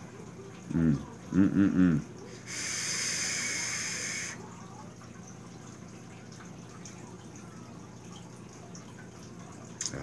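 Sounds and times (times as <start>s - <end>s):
air hissing through atomizer: 2.5s - 4.4s.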